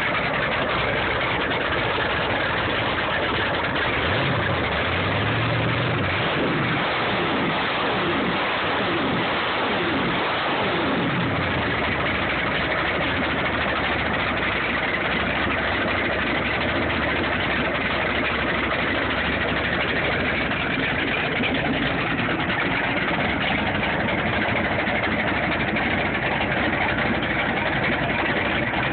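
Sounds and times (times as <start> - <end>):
boat engine running steadily: 0.0 - 28.9.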